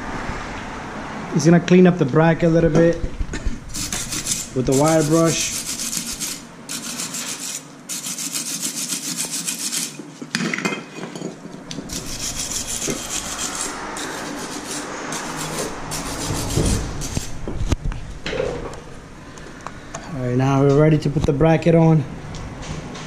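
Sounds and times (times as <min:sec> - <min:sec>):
wire brush scrubbing metal: 0:03.7 - 0:10.0, 0:11.8 - 0:17.4.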